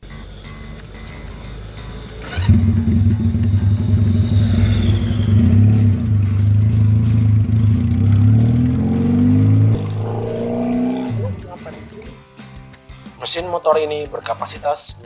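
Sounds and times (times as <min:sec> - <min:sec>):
motorcycle engine revving: 0:02.2 - 0:12.1.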